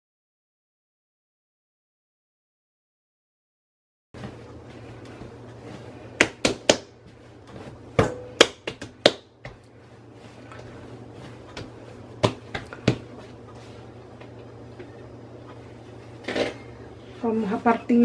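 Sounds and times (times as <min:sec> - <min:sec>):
hands slapping bread dough: 0:04.2 - 0:14.4
low steady hum: 0:04.2 - 0:18.0.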